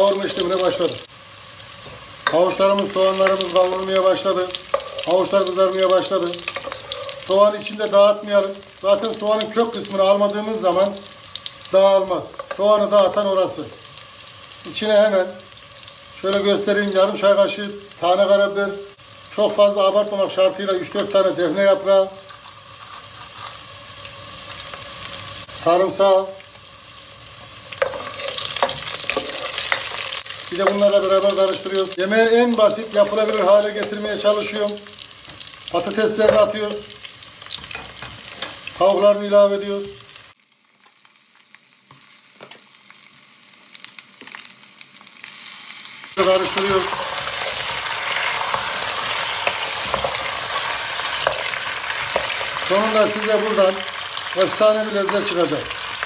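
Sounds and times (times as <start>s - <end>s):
vegetables sizzling in oil: 0.0s - 56.0s
wooden spoon scraping pot: 6.5s - 7.3s.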